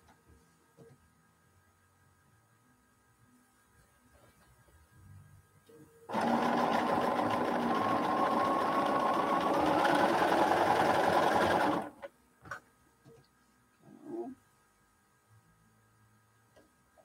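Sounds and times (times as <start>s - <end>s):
sewing machine stitching: 6.1s - 12.1s.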